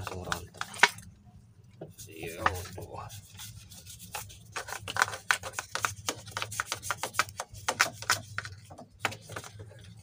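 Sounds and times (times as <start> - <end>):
paintbrush scrubbing strokes: 1.9 - 4.8.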